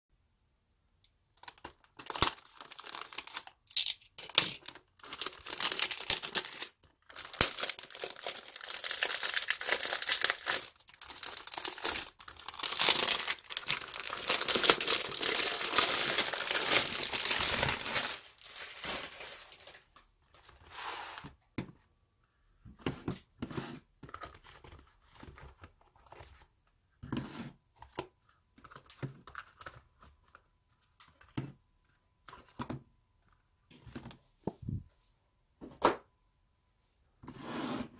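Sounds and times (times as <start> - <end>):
plastic wrap tearing and crinkling: 1.4 - 19.9.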